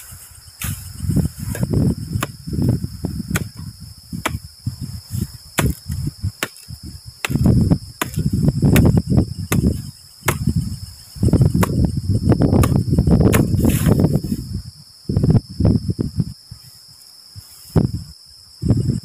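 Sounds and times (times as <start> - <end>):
wind buffeting microphone: 0.0 - 16.7, 17.3 - 19.0
crickets droning: 0.0 - 19.0
machete chopping grass and bamboo: 0.6 - 2.7, 3.3 - 4.5, 5.2 - 10.7, 11.4 - 14.1.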